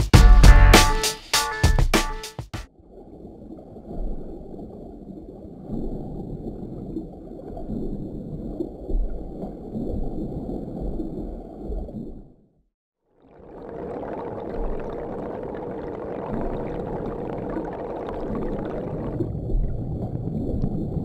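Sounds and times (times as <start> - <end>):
muffled underwater water gurgling: 13.1 - 21.0.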